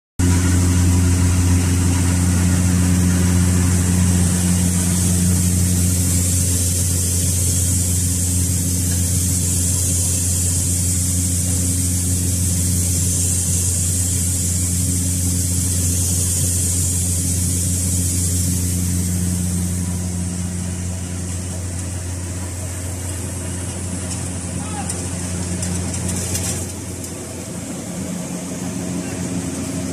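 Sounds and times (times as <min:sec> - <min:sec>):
machine humming: 0:00.2 - 0:29.9
high hiss: 0:03.8 - 0:20.8.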